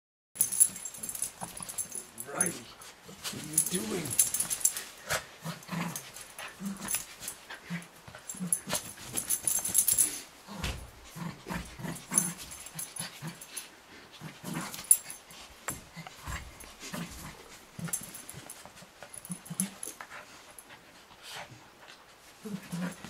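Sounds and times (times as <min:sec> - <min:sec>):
puppy play growls: 0:00.4 - 0:23.0
scuffling and rustling: 0:00.4 - 0:23.0.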